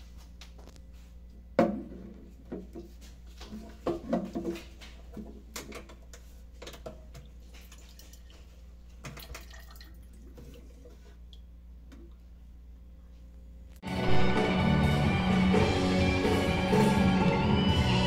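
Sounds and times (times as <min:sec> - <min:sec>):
liquor pouring into glass: 0:09.2 - 0:10.5.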